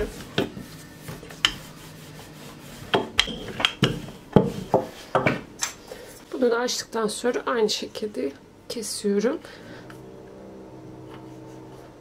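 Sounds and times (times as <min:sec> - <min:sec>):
rolling pin rubbing on dough: 0:00.0 - 0:05.1.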